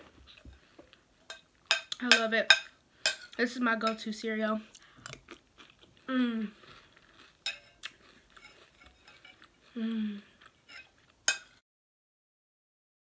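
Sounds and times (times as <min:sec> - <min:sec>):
person humming: 0:06.1 - 0:06.6, 0:09.7 - 0:10.4
spoon clinking against bowl: 0:07.4 - 0:07.8, 0:08.4 - 0:09.5, 0:10.7 - 0:11.5.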